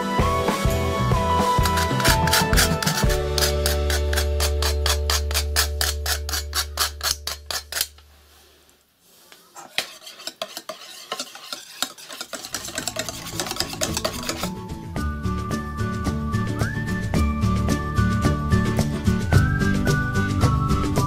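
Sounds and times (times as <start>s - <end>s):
whisk scraping metal pot: 1.3s - 8.0s, 9.6s - 14.6s.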